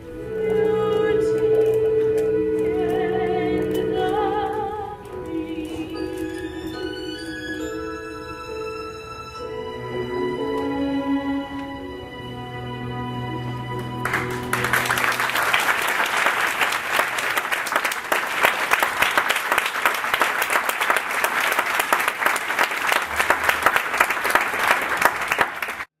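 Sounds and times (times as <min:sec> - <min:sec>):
orchestral music chord: 0:06.6 - 0:16.5
audience applauding: 0:13.7 - 0:25.9.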